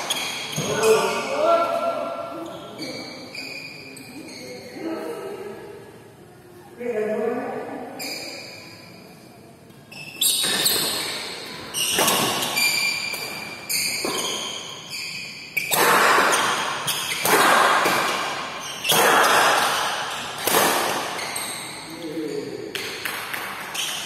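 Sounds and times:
shoes squeaking on court floor: 0.0s - 1.3s, 2.3s - 4.8s, 8.0s - 22.7s, 23.6s - 24.0s
rackets hitting shuttlecock: 10.3s - 14.7s, 15.6s - 21.8s, 22.7s - 24.0s.

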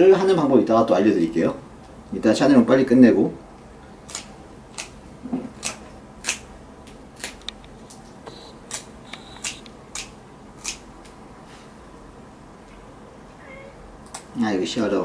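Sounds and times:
clippers snipping claws: 4.1s - 8.0s, 8.7s - 11.2s, 14.0s - 14.4s.

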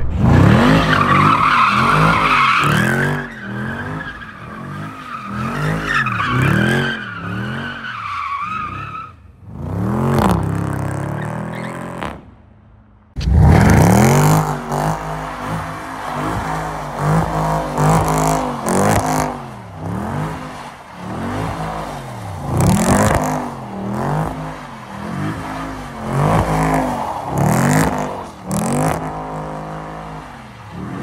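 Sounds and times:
car engine revving: 13.2s - 31.0s.

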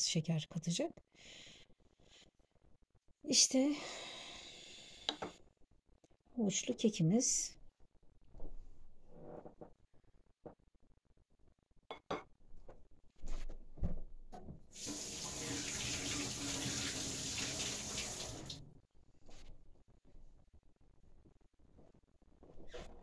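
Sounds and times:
water rushing into sink: 14.8s - 18.6s.

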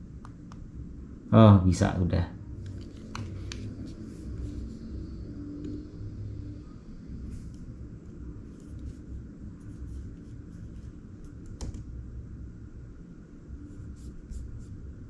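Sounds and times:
laptop keys and trackpad clicking: 11.3s - 11.9s.

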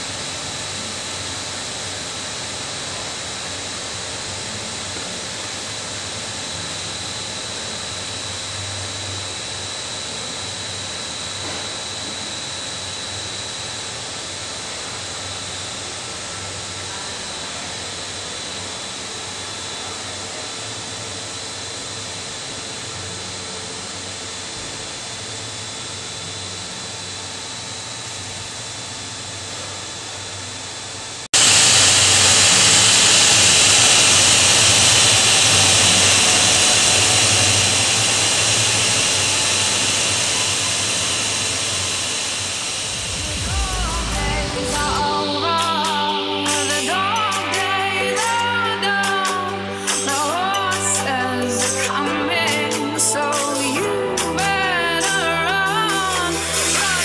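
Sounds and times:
machinery hissing and humming: 29.2s - 57.0s
faint high whine: 31.4s - 57.0s.

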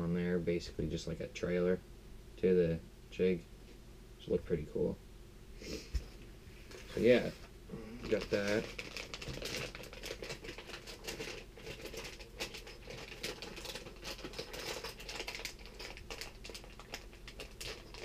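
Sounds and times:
plastic packaging crinkling: 8.0s - 18.0s.

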